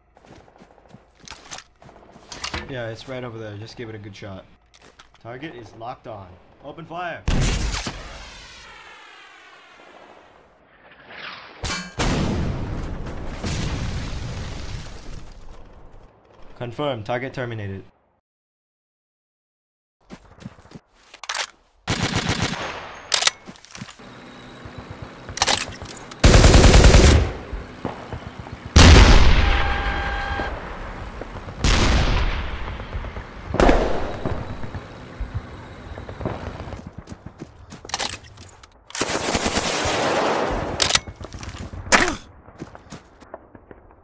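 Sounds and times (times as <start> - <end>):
machine-gun fire: 21.9 - 22.9, 26.2 - 35.2, 39.0 - 40.8
heavy gunshot blasts: 28.8 - 34.7.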